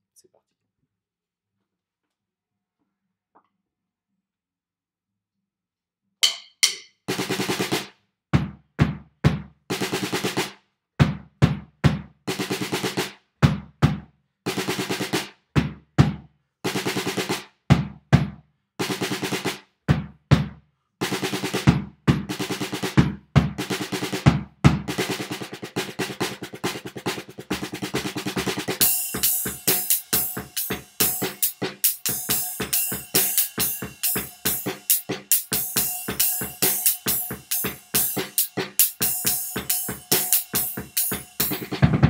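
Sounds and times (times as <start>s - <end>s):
drum kit playing: 6.2s - 42.0s
rapid strokes on practice pad: 24.9s - 42.0s.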